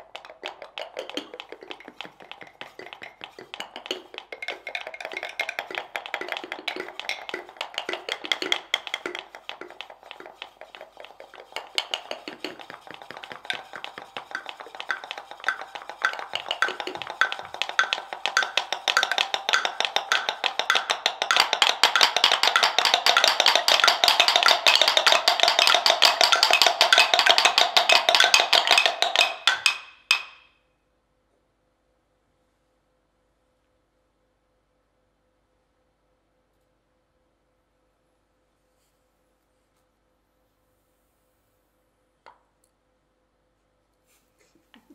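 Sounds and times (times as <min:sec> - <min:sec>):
wooden pestles striking mortars: 0:00.0 - 0:30.5.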